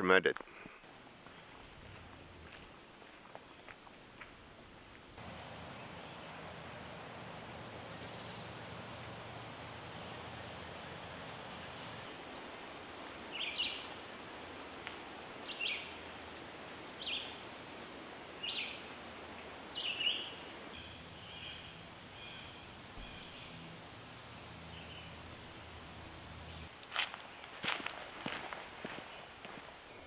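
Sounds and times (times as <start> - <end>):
background hiss: 0.0 - 30.0.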